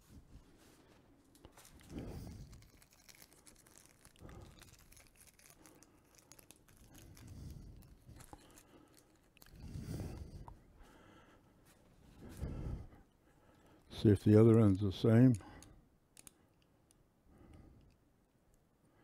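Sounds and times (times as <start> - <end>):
small metal parts clicking: 2.4 - 9.6, 15.3 - 16.4.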